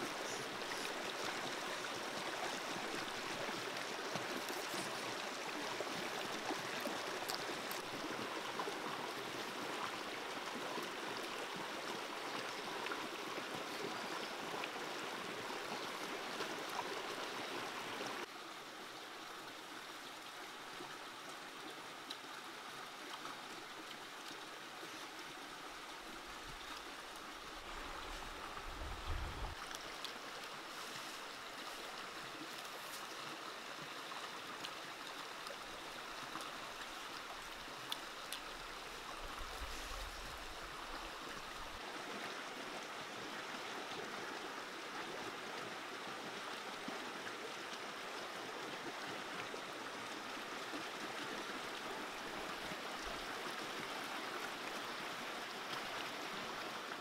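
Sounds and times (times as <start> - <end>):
stream running over rocks: 0.0 - 57.0.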